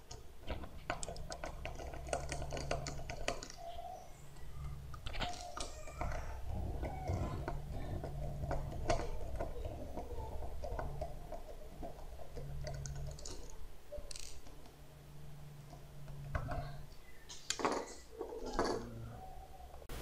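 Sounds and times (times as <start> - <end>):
handling plastic and metal parts: 0.0 - 14.8.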